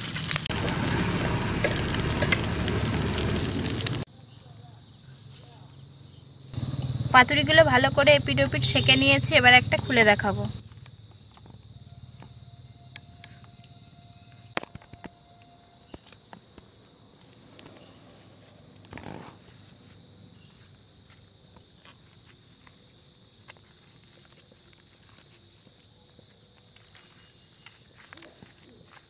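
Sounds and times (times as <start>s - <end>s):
leaf rustling: 0.0s - 4.1s
insects chirring: 0.0s - 29.0s.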